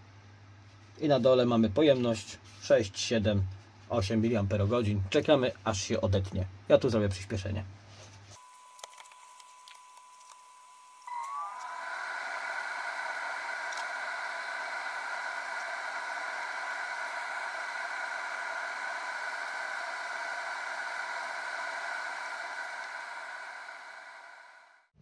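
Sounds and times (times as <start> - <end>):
faint whining tones: 8.4 - 24.9
cooling fan whirring: 11.0 - 24.8.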